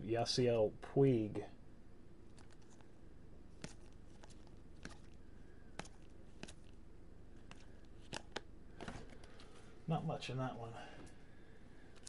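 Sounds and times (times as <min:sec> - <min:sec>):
low steady hum: 0:00.0 - 0:12.0
cards flipping with clicks: 0:02.3 - 0:02.9, 0:03.6 - 0:06.8, 0:07.4 - 0:09.6.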